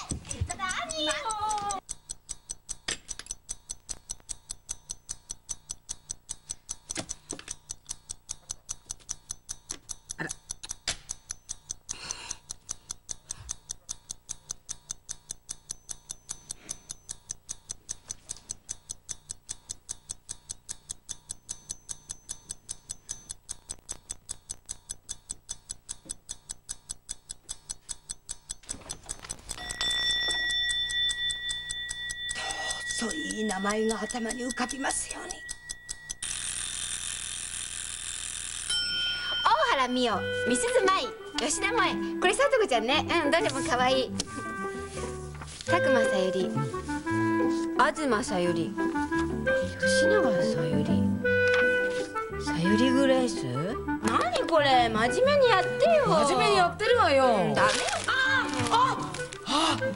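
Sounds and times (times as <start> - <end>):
clock ticking fast: 0.0 - 44.7, 45.4 - 51.4, 52.2 - 59.9
alarm ringing tone: 29.4 - 41.8.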